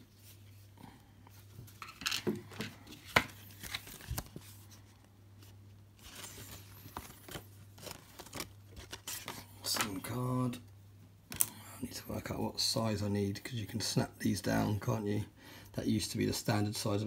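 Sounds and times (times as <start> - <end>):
paper packaging rustling: 1.5 - 10.0.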